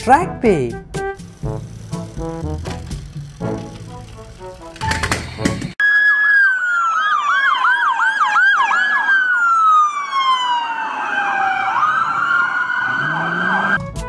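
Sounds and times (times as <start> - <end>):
police siren wail: 5.8 - 13.8
police siren yelp: 5.8 - 13.8.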